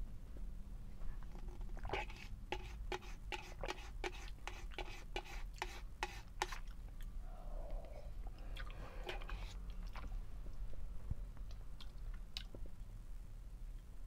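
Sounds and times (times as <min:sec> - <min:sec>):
plastic spork scraping a cup: 0:01.3 - 0:06.6, 0:09.1 - 0:09.6
person slurping broth: 0:07.4 - 0:09.6.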